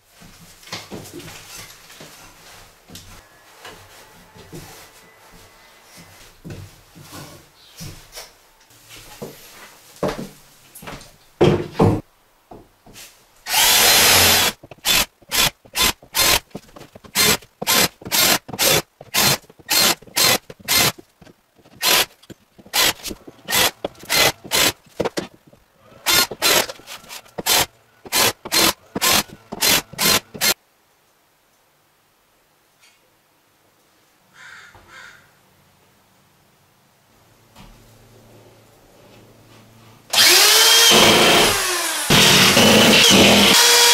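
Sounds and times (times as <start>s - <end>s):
cordless drill driving screws: 13.5s - 21.0s, 21.7s - 25.4s, 26.1s - 30.6s, 40.1s - 43.9s.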